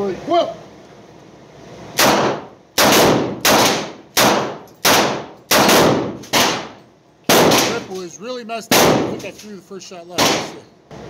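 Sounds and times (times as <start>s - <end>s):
gunshot echo: 2.0s - 7.9s, 8.7s - 9.3s, 10.2s - 10.6s.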